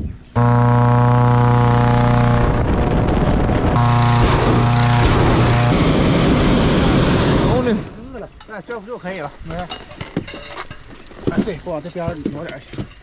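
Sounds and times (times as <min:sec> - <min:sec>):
propane burner roaring: 0:00.4 - 0:08.1.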